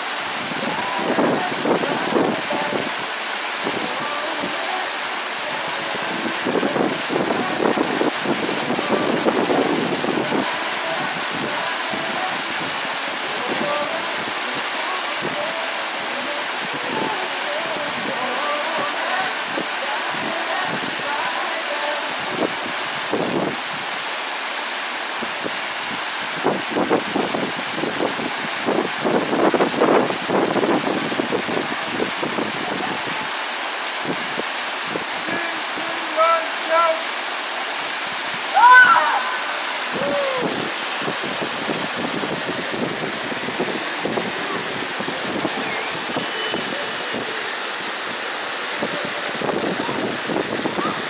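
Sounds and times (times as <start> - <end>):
waterfall rushing: 0.0 - 51.0
wind buffeting microphone: 37.9 - 47.6, 48.7 - 51.0
short falling cry: 38.5 - 40.6.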